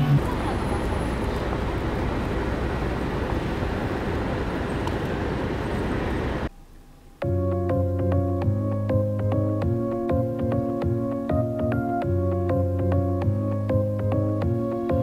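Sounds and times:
traffic noise: 0.0s - 6.5s
soft keyboard music: 6.5s - 15.0s.

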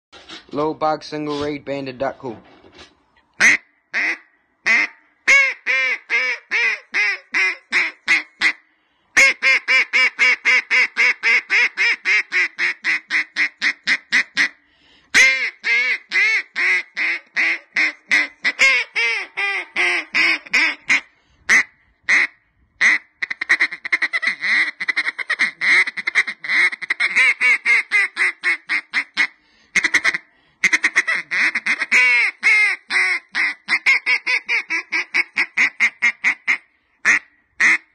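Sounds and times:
duck call quacks: 3.4s - 8.6s, 9.2s - 37.9s.

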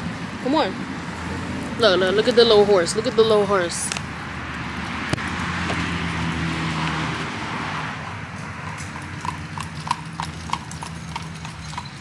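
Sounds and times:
car passing: 0.0s - 12.0s
horse hooves clip-clopping: 3.9s - 12.0s.

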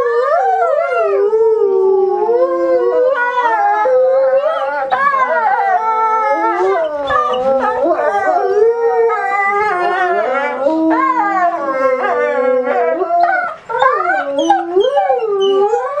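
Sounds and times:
wolves howling: 0.0s - 16.0s.

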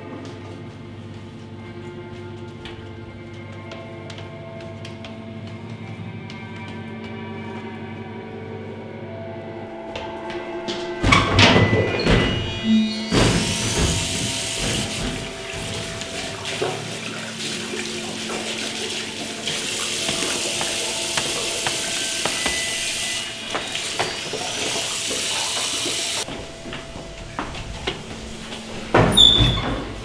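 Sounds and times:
tap water running into basin: 13.0s - 26.4s.

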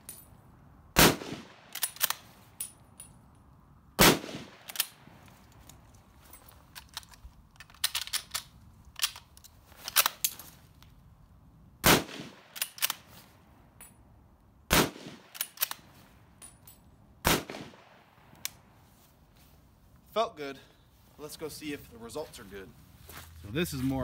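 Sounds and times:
rifle shots: 1.0s - 2.3s, 4.0s - 5.0s, 11.8s - 13.1s, 14.7s - 15.8s, 17.2s - 18.1s
metallic rifle bolt clicks: 1.7s - 3.5s, 4.6s - 10.9s, 12.4s - 13.2s, 15.2s - 16.9s.

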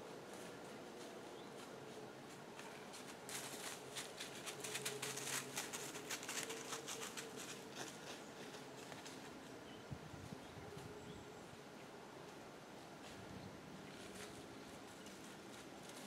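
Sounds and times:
faint outdoor background: 0.0s - 16.0s
dry crackling rustles: 0.2s - 9.6s, 13.0s - 16.0s.

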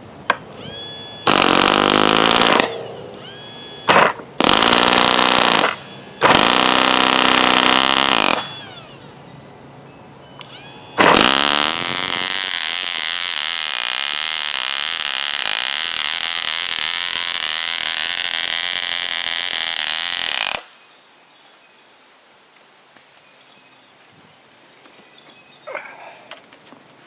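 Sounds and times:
model engine high whine: 0.4s - 9.4s, 10.4s - 20.6s
electric starter spinning: 0.5s - 9.2s, 10.4s - 20.7s.

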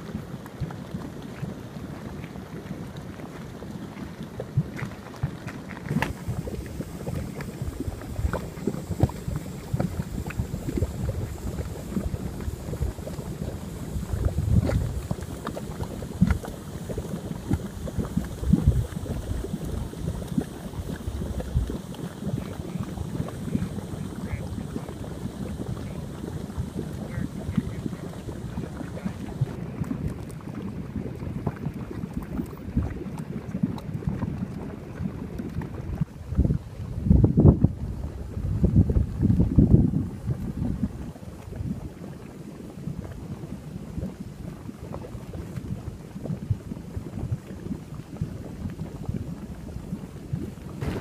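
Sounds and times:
mud pots bubbling: 0.0s - 51.0s
wind on microphone: 3.9s - 51.0s.

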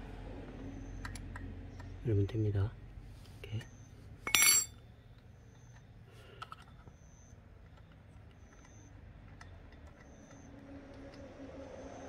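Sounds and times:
faint high chirp: 0.5s - 2.0s, 6.6s - 10.8s
metal spanner clinking: 4.2s - 4.8s.

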